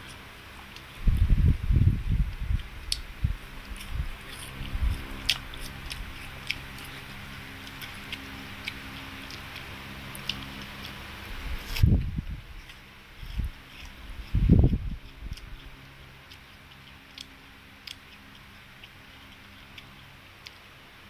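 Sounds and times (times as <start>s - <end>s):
toddler chewing crisp pear: 0.0s - 21.0s.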